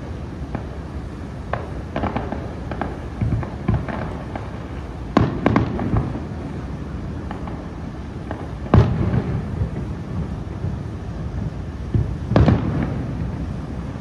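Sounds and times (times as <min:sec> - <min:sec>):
distant firework shells bursting: 0:01.4 - 0:06.3.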